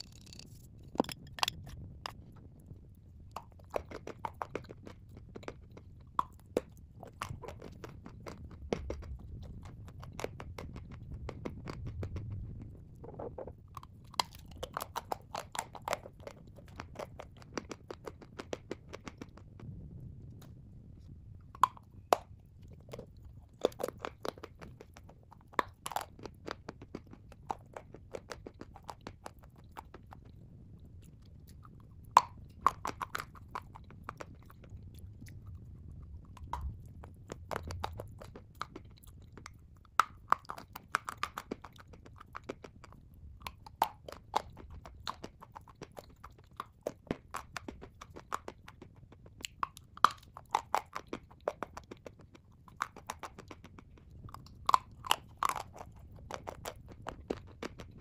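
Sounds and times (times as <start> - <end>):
chalk crunching in mouth: 0.0 - 2.5, 3.3 - 19.5, 21.5 - 30.4, 31.4 - 58.0
soft mouth sounds: 0.0 - 19.6, 21.5 - 58.0.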